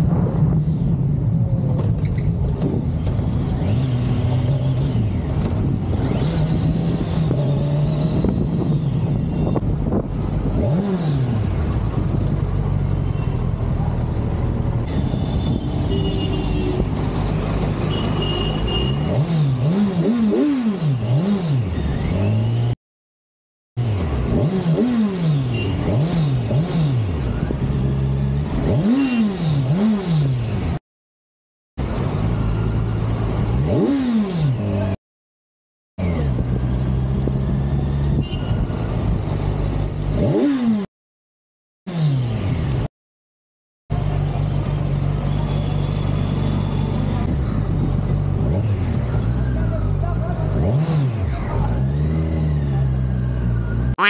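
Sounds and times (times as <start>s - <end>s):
motorcycle engine revving: 1.4s - 12.2s, 16.5s - 22.8s, 23.8s - 30.8s, 31.8s - 35.0s, 36.0s - 40.9s, 46.5s - 54.0s.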